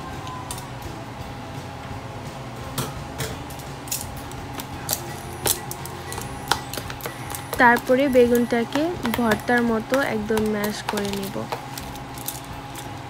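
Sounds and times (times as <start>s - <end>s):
utensils clicking on plastic bowl: 3.6s - 13.0s.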